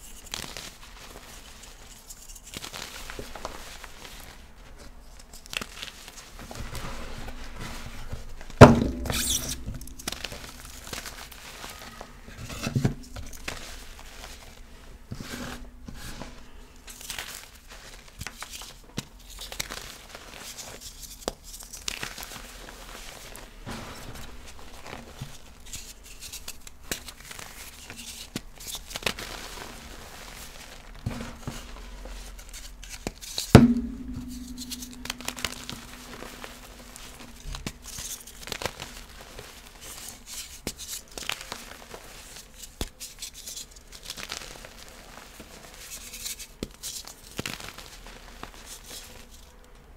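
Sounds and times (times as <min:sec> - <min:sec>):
chalk crunching and crackling: 0:00.0 - 0:08.5, 0:09.1 - 0:49.6
thumps with ringing tail: 0:33.6 - 0:36.5.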